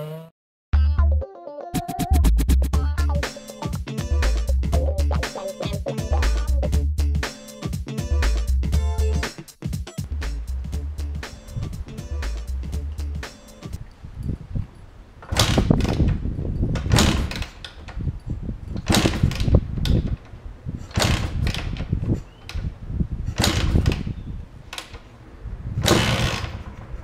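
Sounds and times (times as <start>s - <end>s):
motorcycle engine cranking: 15.2s - 22.7s, 23.3s - 25.1s, 25.8s - 27.0s.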